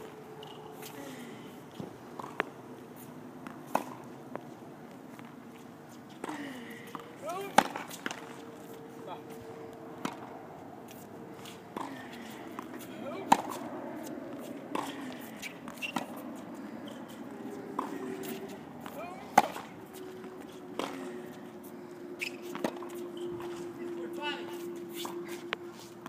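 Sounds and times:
tennis ball struck by rackets: 3.4 - 4.1, 6.2 - 8.4, 10.0 - 10.3, 11.4 - 16.2, 17.8 - 21.1.

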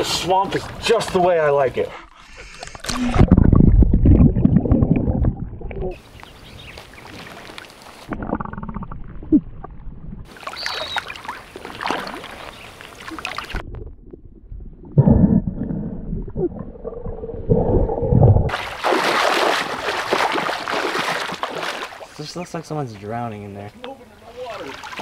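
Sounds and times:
muffled underwater gurgling: 2.0 - 6.0, 13.4 - 18.5
water sloshing and splashing: 2.1 - 8.3, 9.0 - 14.7, 18.5 - 22.3, 24.4 - 25.0.

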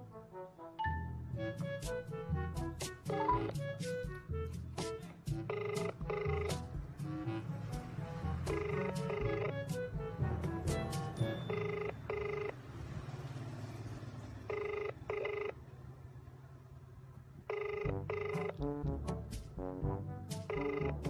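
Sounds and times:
background music with low beat: 0.8 - 11.5, 17.9 - 21.0
telephone ringback tone: 5.4 - 6.6, 8.5 - 9.6, 11.2 - 12.6, 14.5 - 15.6, 17.5 - 18.6, 20.5 - 21.0.

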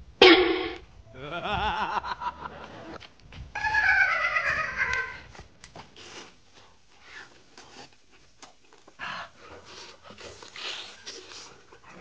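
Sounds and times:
sniffing breaths: 8.9 - 12.0.

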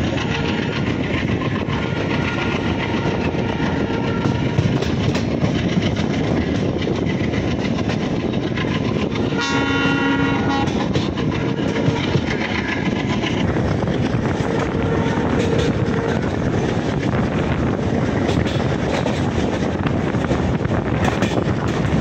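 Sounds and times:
train running: 0.0 - 22.0
wheels clacking over rail joints: 0.0 - 22.0
train horn: 9.3 - 12.2, 14.4 - 16.4.

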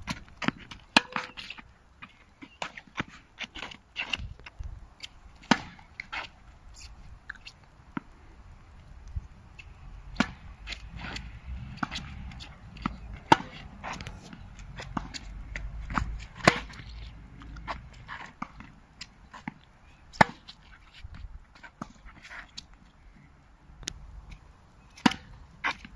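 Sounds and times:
tennis ball hit by rackets: 0.1 - 1.6, 5.4 - 6.3, 10.1 - 17.0, 19.3 - 20.6, 24.9 - 25.9.

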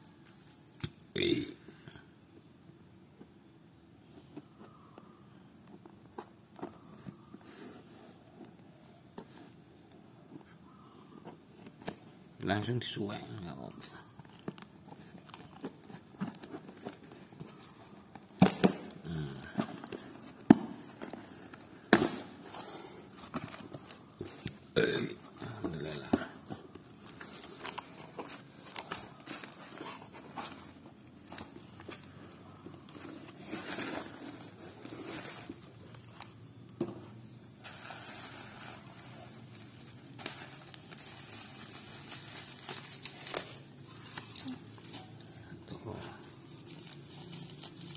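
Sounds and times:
crumpled paper and bubble wrap rustling: 14.1 - 24.5, 25.4 - 47.9
cardboard and tape cracking: 38.5 - 45.2.

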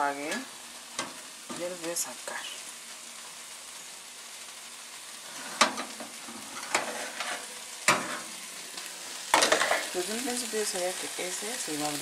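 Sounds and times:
steady hiss: 0.0 - 12.0
metal tray clattering: 5.4 - 8.3, 9.3 - 9.9.

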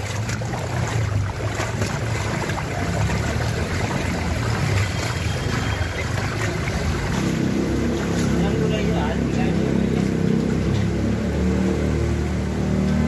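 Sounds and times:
steady low rumble: 0.0 - 5.1
floodwater rushing: 0.0 - 13.0.

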